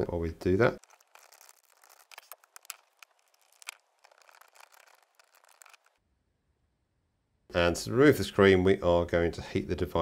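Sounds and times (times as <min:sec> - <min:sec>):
small screwdriver clicks and scratches: 0:00.8 - 0:06.0.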